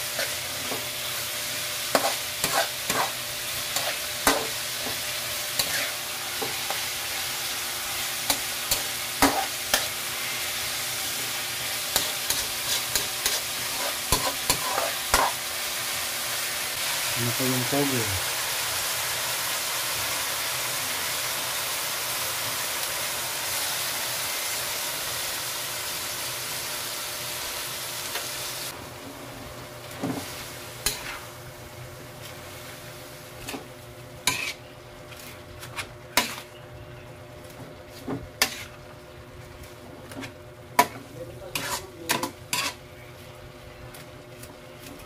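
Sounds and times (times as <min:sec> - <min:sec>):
vegetables sizzling in a wok: 0:00.0 - 0:45.0
metal spatula scraping a wok: 0:01.9 - 0:04.5, 0:05.5 - 0:06.9, 0:08.3 - 0:10.4, 0:11.9 - 0:15.4, 0:30.8 - 0:31.3, 0:33.4 - 0:34.7, 0:35.6 - 0:36.6, 0:38.4 - 0:38.8, 0:40.8 - 0:42.8.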